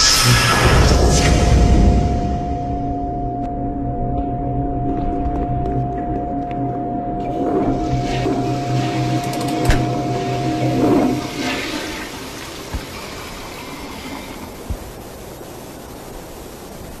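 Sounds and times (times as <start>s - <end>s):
droning tone: 0.0s - 16.6s
toilet flushing: 7.6s - 14.3s.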